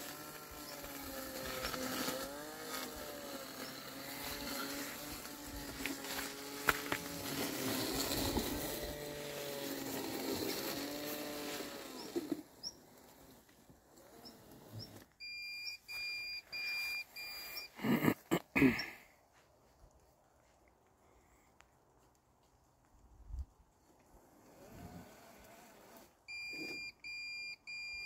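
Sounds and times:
robotic mower motor whine: 0:00.0 - 0:15.1, 0:15.9 - 0:17.8, 0:24.4 - 0:26.8
short beeps: 0:15.2 - 0:17.7, 0:26.3 - 0:28.0.

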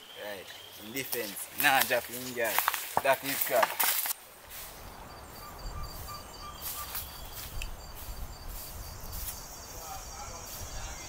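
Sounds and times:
insect pulsing chirp: 0:04.6 - 0:11.0.

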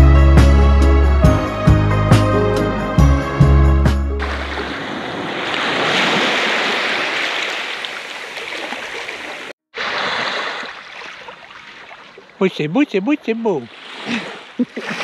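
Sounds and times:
small waves lapping on sand: 0:04.2 - 0:15.0.

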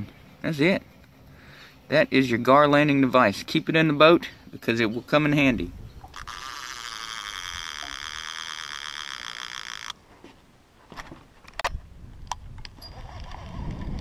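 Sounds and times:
high-pitched buzz: 0:06.1 - 0:10.0.

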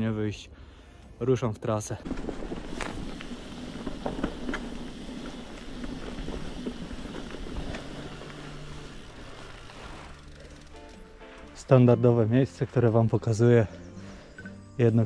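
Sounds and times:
bike clicks and rattles: 0:02.0 - 0:11.6
tyre noise on trail: 0:02.0 - 0:11.7.

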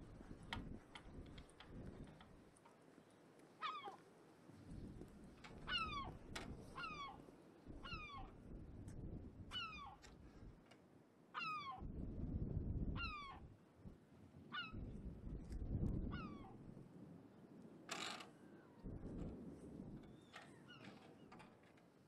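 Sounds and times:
wind rumble on microphone: 0:00.0 - 0:02.6, 0:04.5 - 0:10.6, 0:11.8 - 0:21.6.

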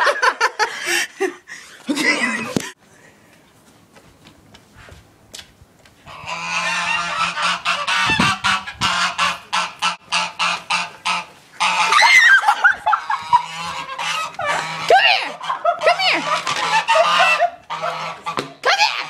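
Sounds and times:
geese honking: 0:06.1 - 0:19.0.

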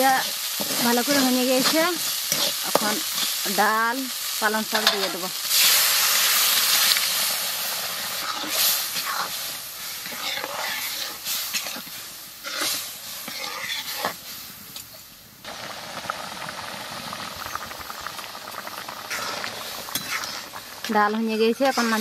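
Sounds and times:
food sizzling in oil: 0:00.0 - 0:22.0
ladle scraping and knocking pan: 0:19.1 - 0:20.5.

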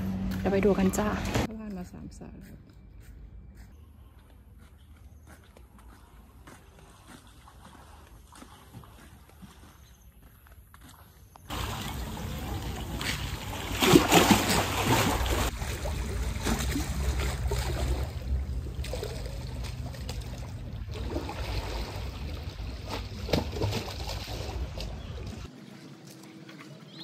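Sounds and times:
water lapping against sea wall: 0:11.5 - 0:27.0.

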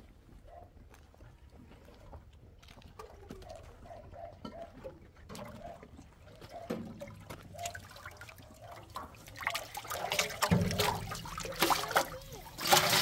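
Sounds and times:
water sloshing in metal barrel: 0:05.2 - 0:13.0
water spilling and splashing: 0:07.0 - 0:13.0.

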